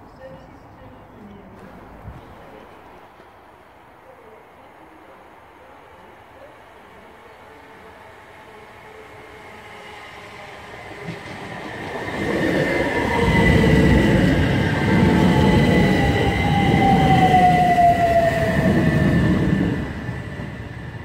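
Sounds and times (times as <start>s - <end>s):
train wheels rumbling on rails: 9.2s - 21.0s.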